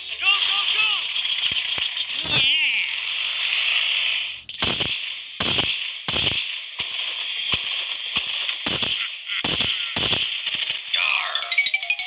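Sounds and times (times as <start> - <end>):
firecracker bangs: 4.6 - 10.7.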